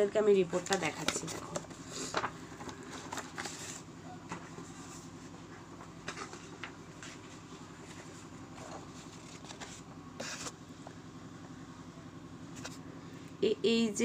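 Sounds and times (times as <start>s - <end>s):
steady low hum: 0.0s - 14.0s
paper rustling: 0.5s - 10.6s.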